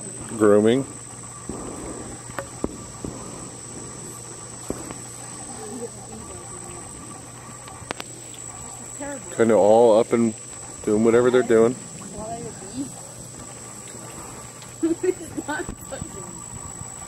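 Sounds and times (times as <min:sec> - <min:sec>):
high-pitched insect trill: 0:00.0 - 0:17.0
low steady hum: 0:00.0 - 0:17.0
faint ticks: 0:06.1 - 0:08.9.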